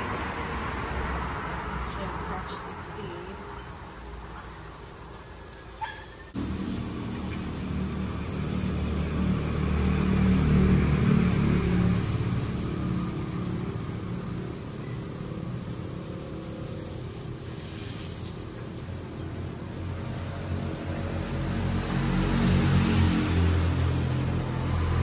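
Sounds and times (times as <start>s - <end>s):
passing engine rumble: 0.0s - 25.0s
sausages sizzling in a pan: 4.5s - 9.6s, 11.3s - 20.2s.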